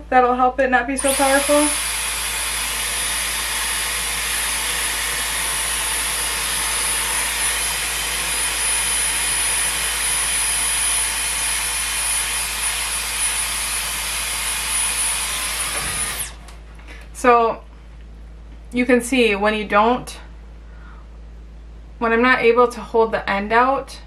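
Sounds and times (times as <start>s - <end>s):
hair styler air rush: 1.0s - 16.4s
high-pitched motor whine: 1.0s - 16.4s.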